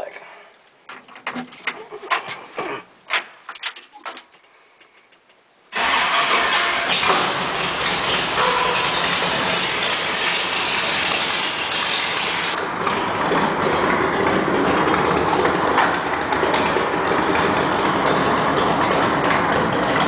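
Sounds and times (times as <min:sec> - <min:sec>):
engine running: 0:05.8 - 0:20.0.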